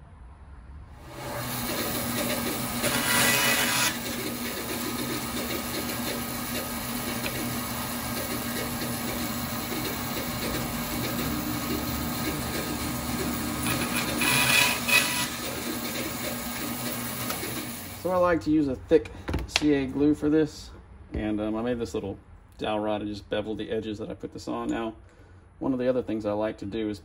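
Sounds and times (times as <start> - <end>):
band saw blade cutting: 1.0 - 18.1
band saw motor hum: 1.0 - 18.1.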